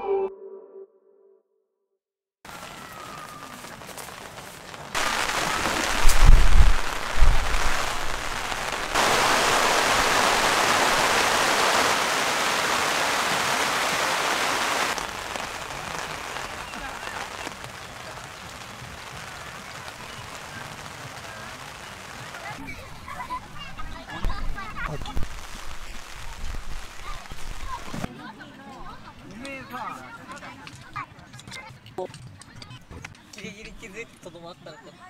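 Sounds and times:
rain on a tarp: 2.5 - 23.3, 24.2 - 28.1
heavy low thumps: 5.9 - 8.6.

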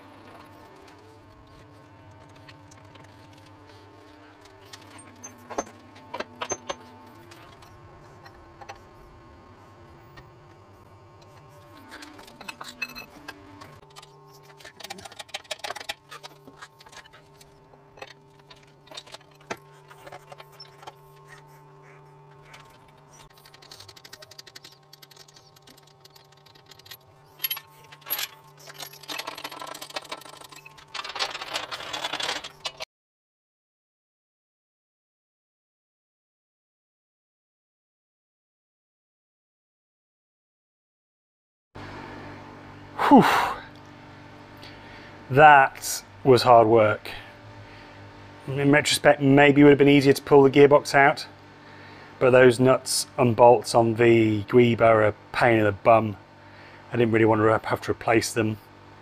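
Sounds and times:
steady low hum: 0.0 - 31.4, 41.8 - 59.0
engine crane clicking and jingling: 22.3 - 32.8.

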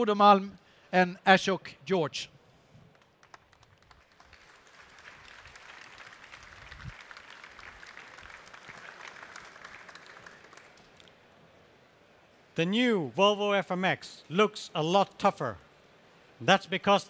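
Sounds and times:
audience applauding: 2.9 - 11.1.

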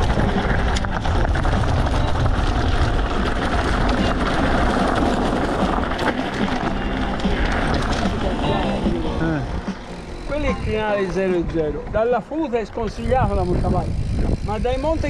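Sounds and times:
road noise: 0.0 - 15.0
wind on microphone: 12.8 - 15.0.

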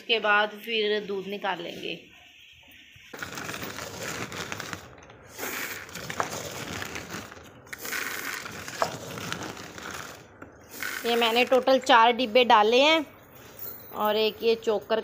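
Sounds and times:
feed pellets poured into plastic tub: 3.2 - 11.6.

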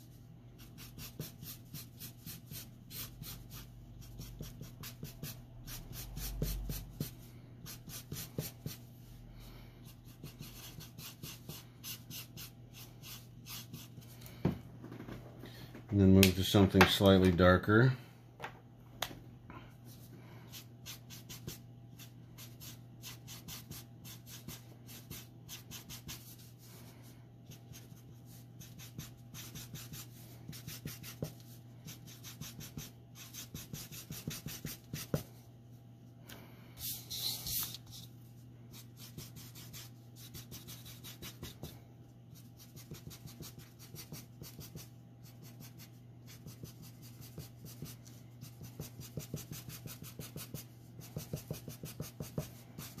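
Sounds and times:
marker scratching on paper: 0.6 - 8.8, 10.0 - 14.1, 20.5 - 26.6, 27.5 - 35.3, 36.8 - 38.1, 38.7 - 41.7, 42.4 - 53.0.

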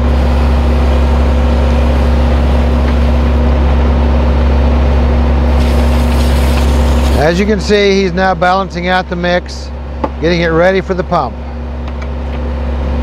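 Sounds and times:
loader engine running: 0.0 - 13.0
concrete mixer churning: 5.3 - 8.1.

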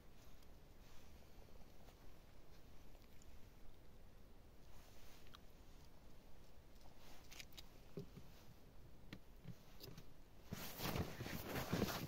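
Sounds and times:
padded suit rustling: 10.4 - 12.0.

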